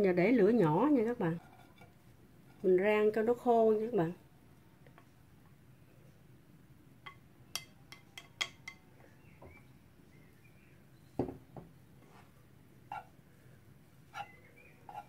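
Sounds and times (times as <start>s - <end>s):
glass bowl clinking against pan: 7.1s - 8.8s.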